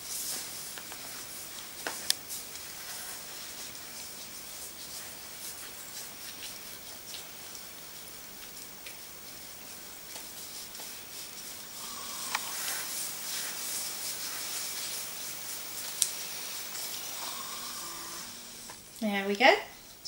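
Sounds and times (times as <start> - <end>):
faint clicks: 12.2 - 12.6.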